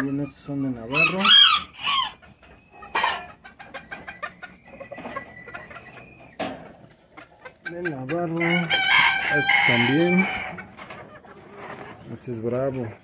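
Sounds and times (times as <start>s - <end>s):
chickens clucking: 0.0s - 13.0s
chicken squawking call: 0.8s - 6.4s, 7.2s - 10.7s.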